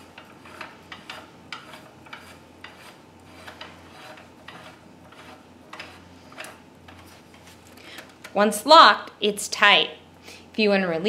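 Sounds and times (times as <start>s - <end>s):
knob threads scraping and clicking: 0.2s - 7.2s.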